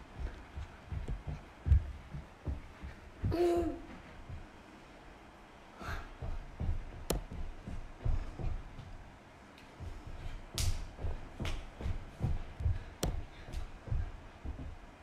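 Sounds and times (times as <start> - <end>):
sharp taps: 6.2 - 8.9, 10.5 - 14.8.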